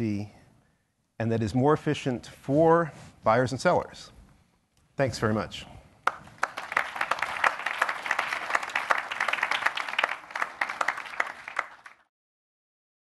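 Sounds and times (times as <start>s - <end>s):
audience applauding: 6.0s - 12.1s.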